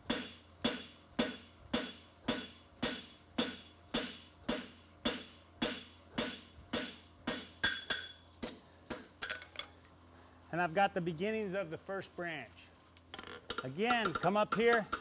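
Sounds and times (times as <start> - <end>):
hammer ringing on hot steel: 0.1 - 8.2.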